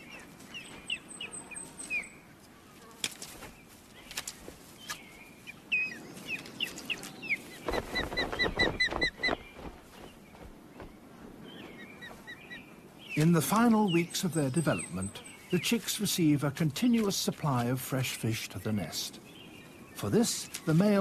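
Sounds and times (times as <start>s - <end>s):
wing flaps: 6.6s - 12.3s.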